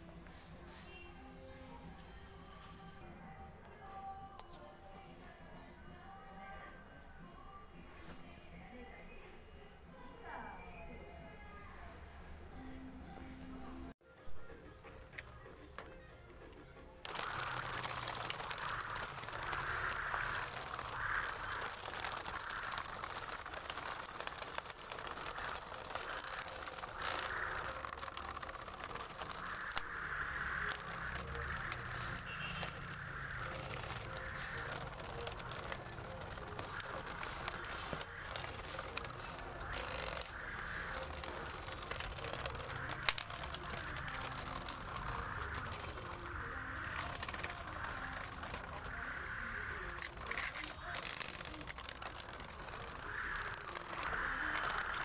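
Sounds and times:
grass cutter motor whirring: 17.0 - 55.0
rattling and crackling through weeds: 17.0 - 55.0.

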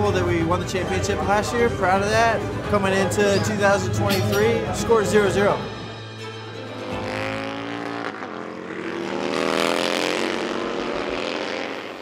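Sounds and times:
racing motorcycle engine revving: 6.6 - 12.0.

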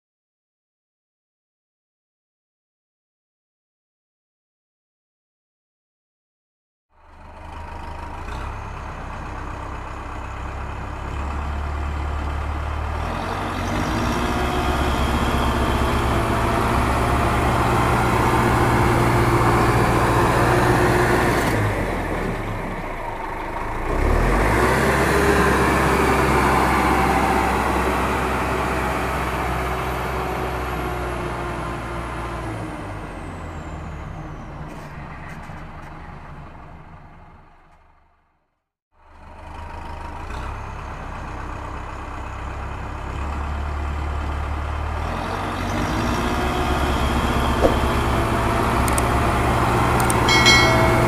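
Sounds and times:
heavy engine revving: 10.2 - 34.1, 39.2 - 51.0.

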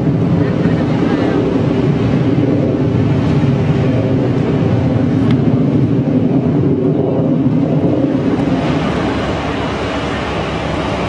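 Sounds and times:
fighter jet engine roaring: 0.0 - 11.0.

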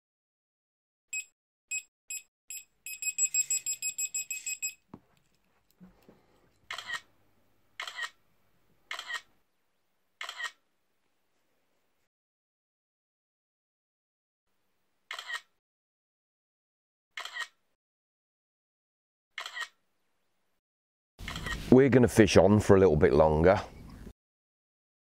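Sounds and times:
electronic bite alarm beeping: 1.2 - 4.8.

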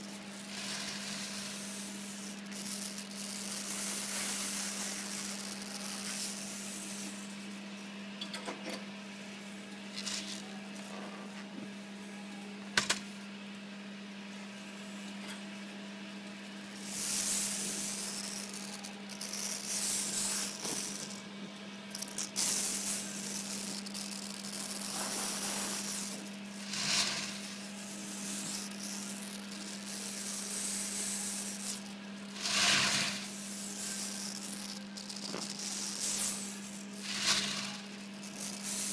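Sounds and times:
gas torch flame hissing: 0.0 - 7.6, 16.7 - 21.2, 21.9 - 38.9
steady low hum: 0.0 - 38.9.

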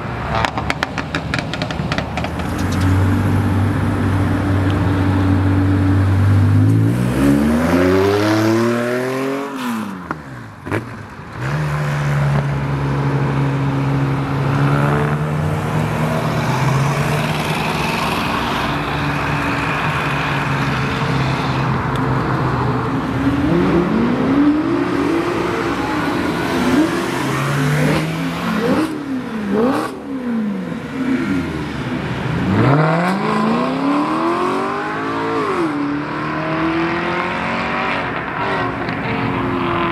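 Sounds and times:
car engine idling and revving: 0.0 - 39.9
car driving off: 0.2 - 39.9
car engine revving pulling away: 32.4 - 38.6.

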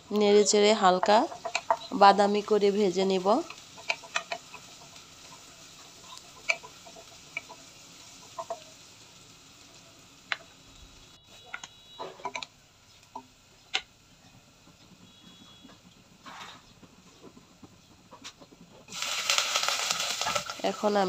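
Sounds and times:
onions sizzling in oil: 0.0 - 21.0
sharp clicks and ticks: 0.8 - 5.4, 6.2 - 7.6, 10.2 - 10.5, 11.5 - 14.0.

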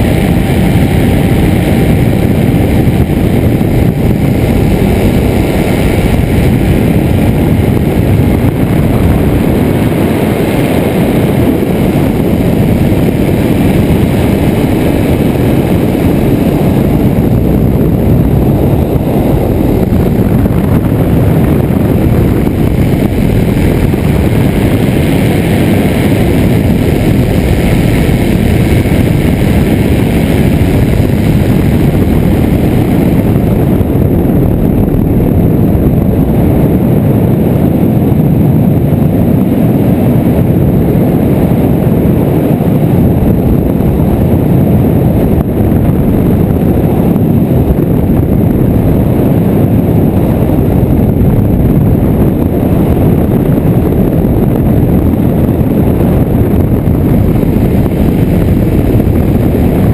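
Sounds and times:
aircraft engine drone: 0.0 - 59.9
wind rushing over camera: 0.0 - 59.9.

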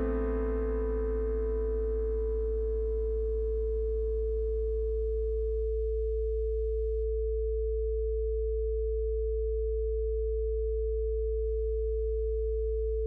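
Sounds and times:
higher steady tone: 0.0 - 7.4
low sine tone: 0.0 - 13.0.

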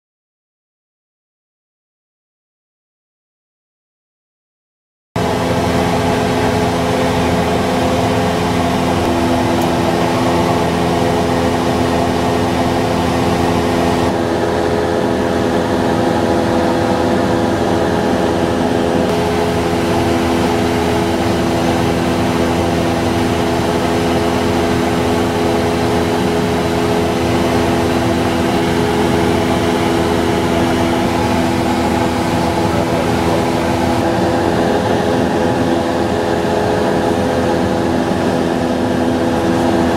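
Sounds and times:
airplane engine drone in cabin: 5.2 - 39.9.

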